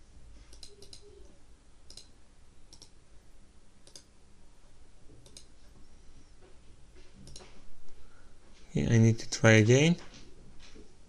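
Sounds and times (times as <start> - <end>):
computer mouse clicking: 0.5 - 1.3, 1.9 - 3.0, 3.8 - 4.1, 5.2 - 5.6, 7.2 - 7.6.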